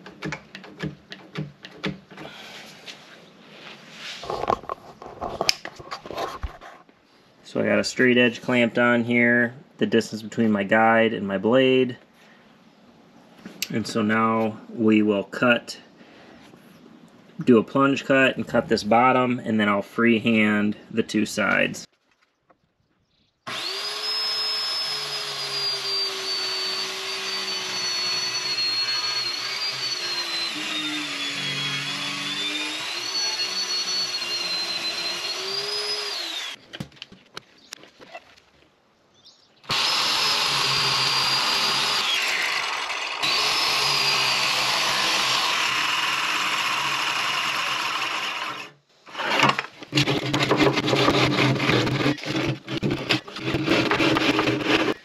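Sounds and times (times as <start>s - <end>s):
scraping and knocking on wood: 4.0s - 6.9s, 49.1s - 55.0s
circular saw cutting wood: 23.5s - 36.6s, 39.7s - 55.0s.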